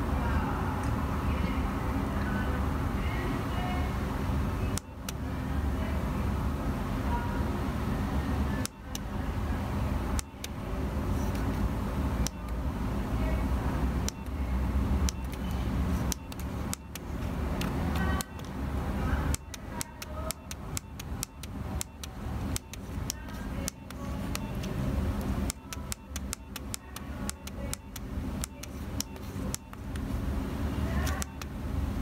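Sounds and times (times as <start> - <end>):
phone keys clicking: 15.0 - 18.6, 19.3 - 30.1, 31.0 - 31.5.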